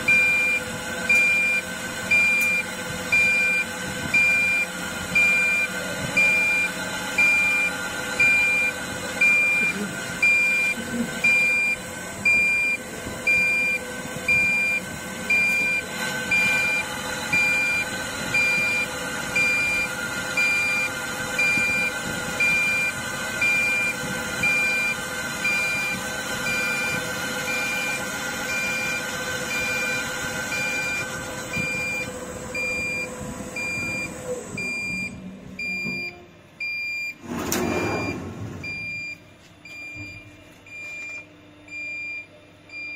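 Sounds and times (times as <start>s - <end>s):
lathe cutting with whine: 14.8s - 34.5s.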